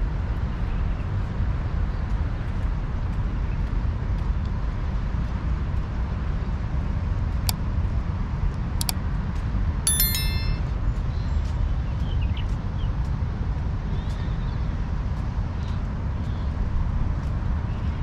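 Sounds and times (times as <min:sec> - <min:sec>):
metallic clinks and rings: 0:09.9 - 0:10.7.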